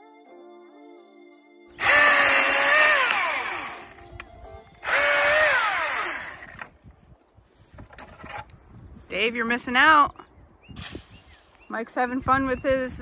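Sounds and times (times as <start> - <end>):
cordless chainsaw motor whining: 1.8 - 4.1, 4.8 - 6.7.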